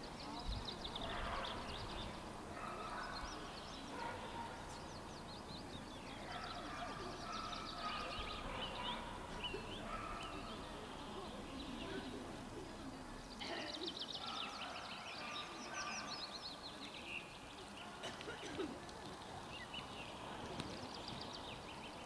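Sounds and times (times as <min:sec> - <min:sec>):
birds chirping and trilling: 0:00.0 - 0:12.4, 0:13.2 - 0:17.9
outdoor background noise: 0:00.0 - 0:22.0.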